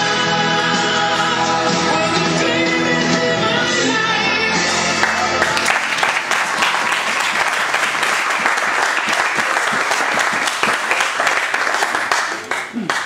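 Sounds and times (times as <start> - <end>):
music: 0.0 - 9.3
crowd applauding: 4.7 - 13.0.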